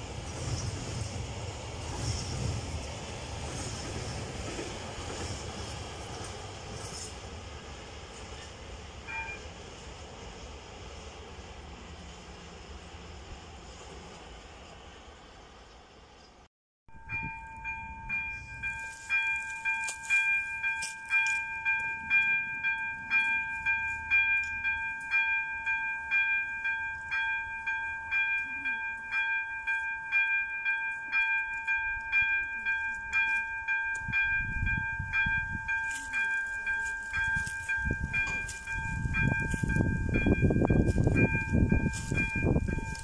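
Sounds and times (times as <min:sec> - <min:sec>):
level-crossing warning bell ringing: 0:09.0 - 0:09.6, 0:16.9 - 0:43.0.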